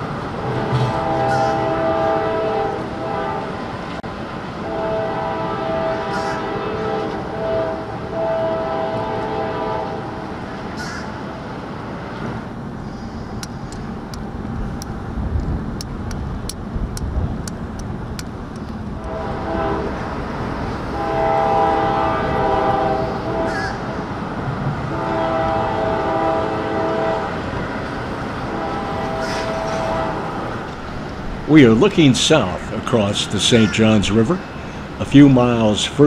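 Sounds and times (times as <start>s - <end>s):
low train rumble: 0.0s - 36.0s
locomotive air horn blasts: 0.4s - 3.7s, 4.6s - 10.1s, 19.0s - 20.2s, 20.9s - 24.2s, 24.8s - 27.6s, 28.4s - 30.7s.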